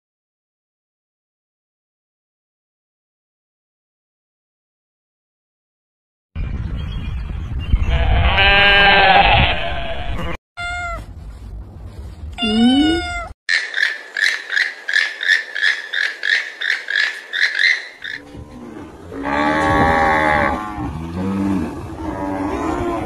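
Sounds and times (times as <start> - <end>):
sheep bleating: 7.9 - 10.4
cat meowing: 10.6 - 11.1, 12.4 - 13.4
rapid short repeated calls: 13.5 - 18.2.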